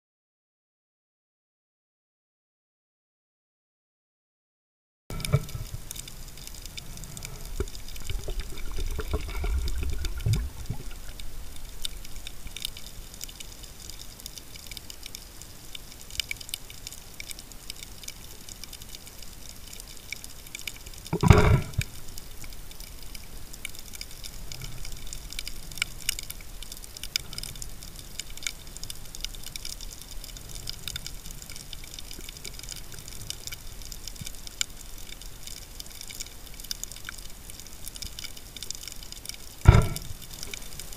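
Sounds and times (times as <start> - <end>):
low underwater rumble: 5.1 - 13.8, 21.2 - 23.1, 39.6 - 40.9
underwater crackle of faint clicks: 5.1 - 40.9.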